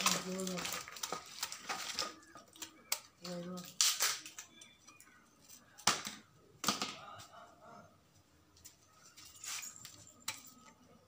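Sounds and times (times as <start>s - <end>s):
person's voice: 0.0s - 0.9s.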